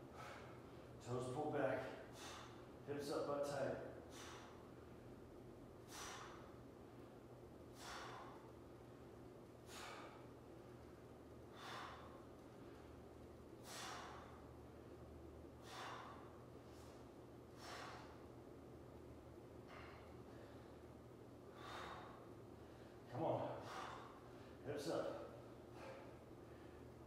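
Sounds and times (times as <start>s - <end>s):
man breathing out sharply: 0.0s - 0.9s, 1.9s - 2.8s, 4.0s - 4.8s, 5.8s - 6.6s, 7.7s - 8.5s, 9.6s - 10.4s, 11.5s - 12.8s, 13.6s - 14.6s, 15.5s - 18.4s, 19.6s - 20.8s, 21.5s - 24.6s, 25.2s - 27.0s.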